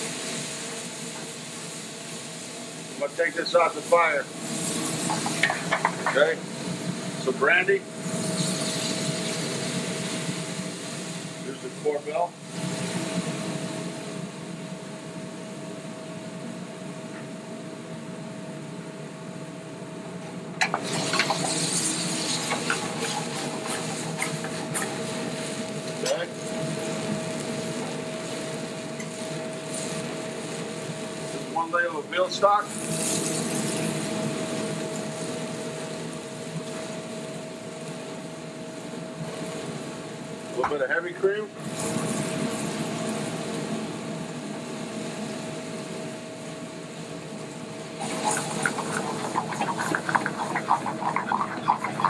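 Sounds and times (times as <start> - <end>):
sauce sizzling in a skillet: 0.0 - 7.2, 8.0 - 11.4, 20.6 - 31.2, 32.7 - 37.9, 47.9 - 52.0
flambe flaring crackle: 0.0 - 52.0
steady hum: 0.0 - 52.0.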